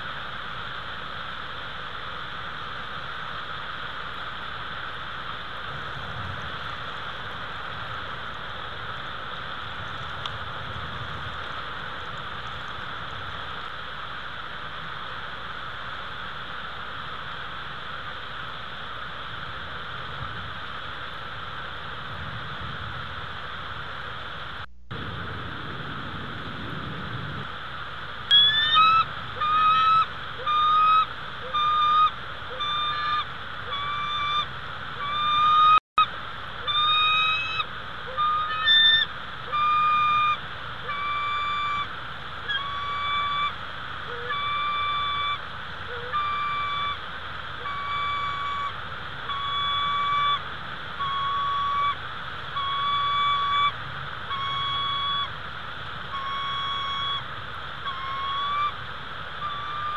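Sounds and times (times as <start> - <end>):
storm wind hiss: 0.0 - 59.9
large bird honking calls: 28.3 - 35.8, 36.6 - 47.0, 47.6 - 50.4, 56.1 - 58.8, 59.4 - 59.9.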